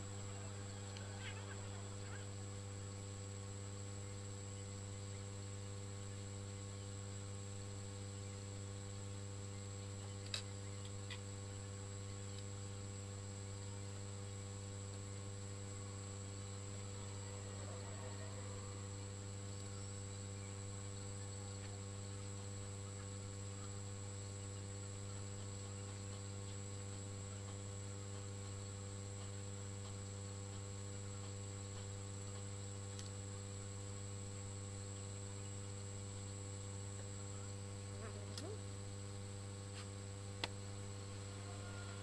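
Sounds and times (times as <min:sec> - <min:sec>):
electrical mains hum: 0:00.0 - 0:42.0
thin high whine: 0:34.3 - 0:42.0.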